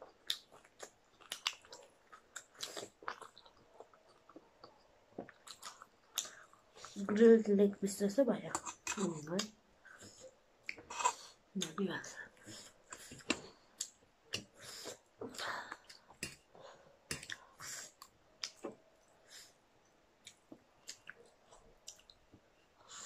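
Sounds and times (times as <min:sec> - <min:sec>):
chewing food: 0:00.0 - 0:07.4, 0:12.4 - 0:23.0.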